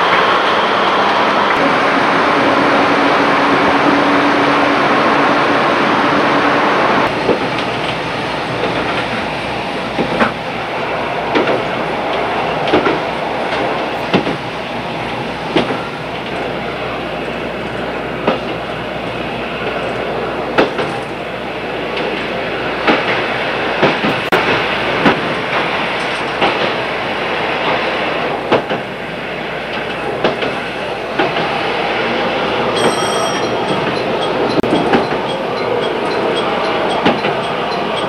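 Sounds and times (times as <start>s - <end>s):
train rumbling on track: 0.0s - 38.0s
wheels clicking on rail joints: 7.0s - 10.6s, 11.2s - 29.0s, 29.7s - 38.0s.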